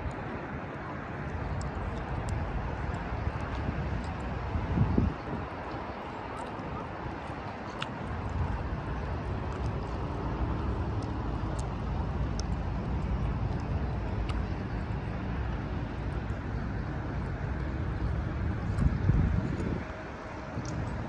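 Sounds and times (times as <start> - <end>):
traffic rumble: 0.0 - 21.0
wind on microphone: 1.3 - 21.0.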